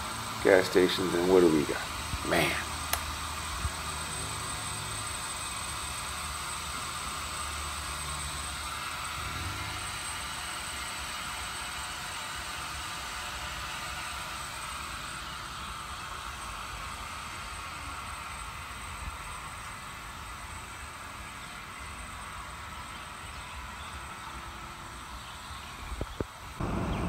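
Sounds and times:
thin high whine: 0.0 - 11.8
low hum: 26.6 - 27.0.

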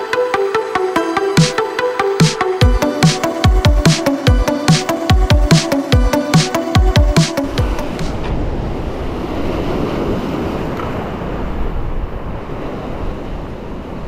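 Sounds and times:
electronic music: 0.0 - 8.2
wind on microphone: 7.4 - 14.0.

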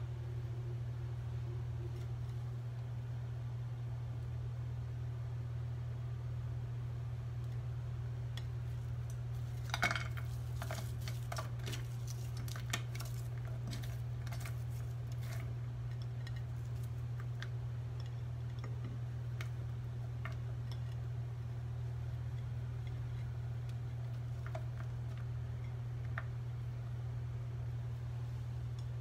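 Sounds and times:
steady low hum: 0.0 - 29.0
onion dropping into a pot: 9.6 - 14.6.

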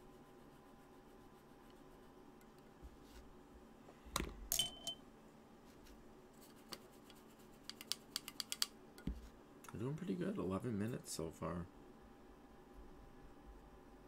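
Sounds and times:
sharp clinks with ringing tone: 4.5 - 5.0.

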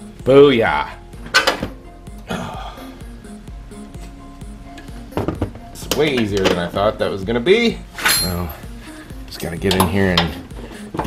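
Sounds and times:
background music: 0.0 - 11.0
sharp metallic clink: 8.0 - 8.6.

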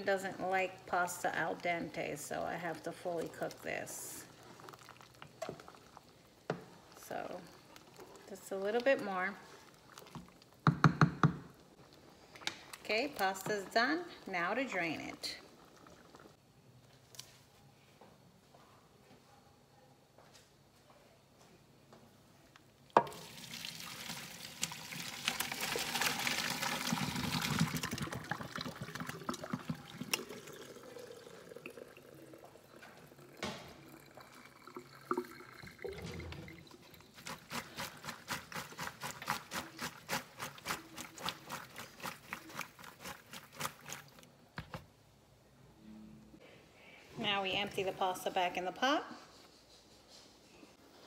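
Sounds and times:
water draining through colander: 23.0 - 44.2.

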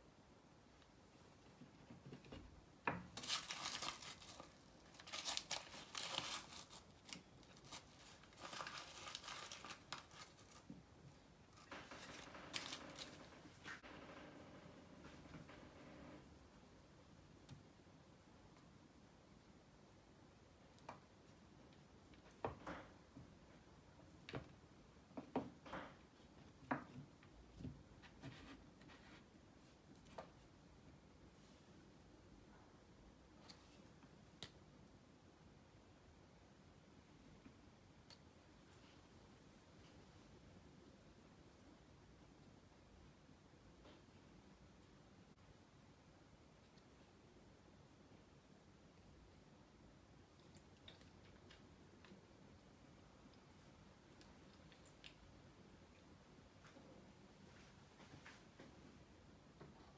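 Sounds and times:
parchment paper crinkling: 3.1 - 10.8, 11.5 - 13.8.

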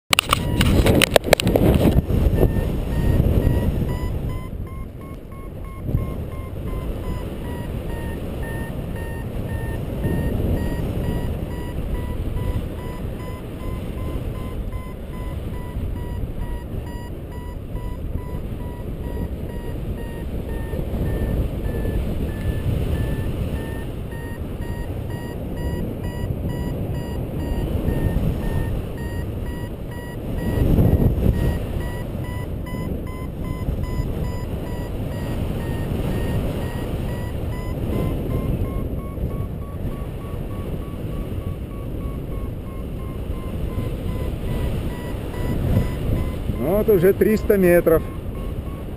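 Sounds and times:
variometer beeping: 0.1 - 48.9
wind over microphone: 0.1 - 48.9.

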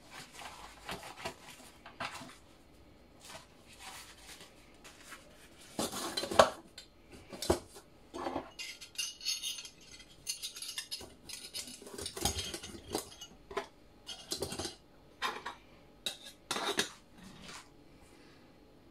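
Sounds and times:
metal clinking and scraping: 8.2 - 17.5.

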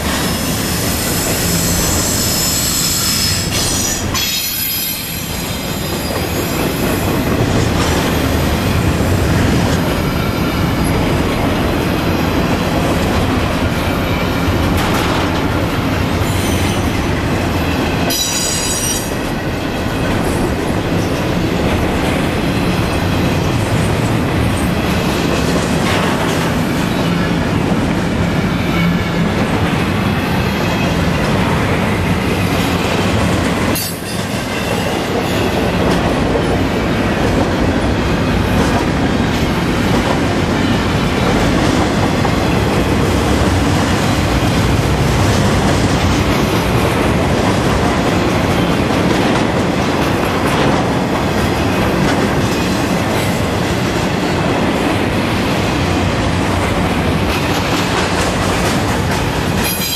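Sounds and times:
train wheel squeal: 0.0 - 7.2, 16.2 - 17.0, 17.6 - 20.5, 33.7 - 35.8, 59.6 - 59.9
freight train rolling past: 0.0 - 59.9.

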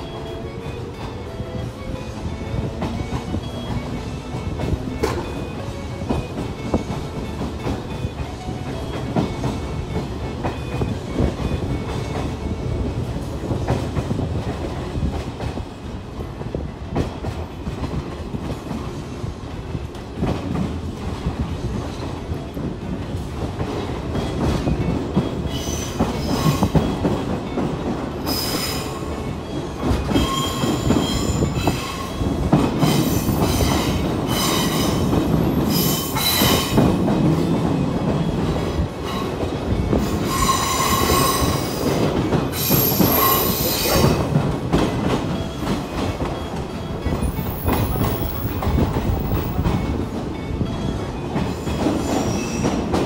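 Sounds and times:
train rumble: 0.0 - 53.0
train wheels squealing: 24.1 - 44.4, 45.2 - 53.0.

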